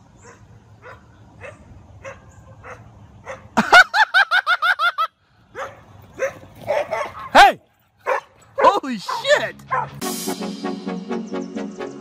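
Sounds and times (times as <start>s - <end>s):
small dog barking and yipping: 0.2s - 3.6s, 5.6s - 10.0s.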